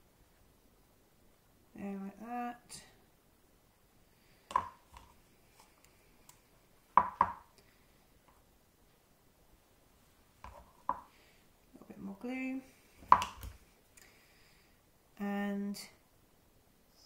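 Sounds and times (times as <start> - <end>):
hands tapping on tabletop: 4.5 - 5.1, 7.0 - 7.5, 10.4 - 11.1, 13.0 - 13.6.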